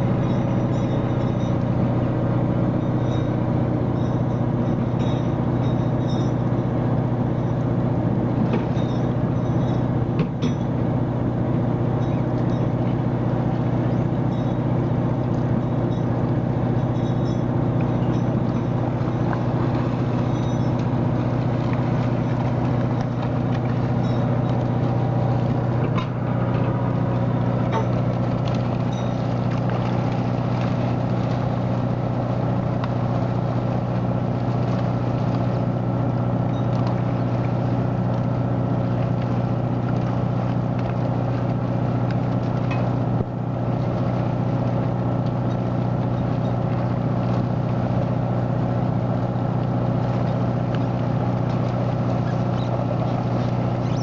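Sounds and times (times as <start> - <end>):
boat engine drone: 0.0 - 54.0.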